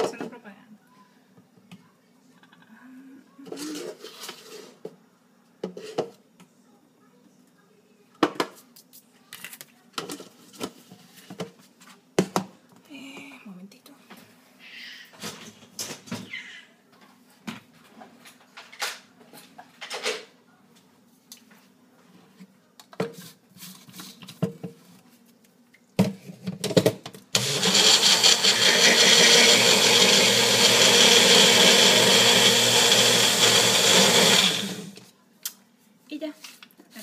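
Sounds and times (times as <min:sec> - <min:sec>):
blender motor running: 0:27.4 - 0:35.0.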